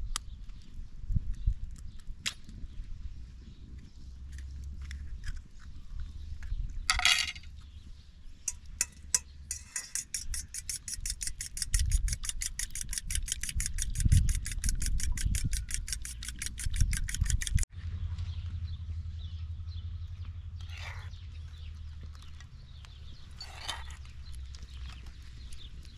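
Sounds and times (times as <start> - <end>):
low steady hum: 17.8 - 25.9.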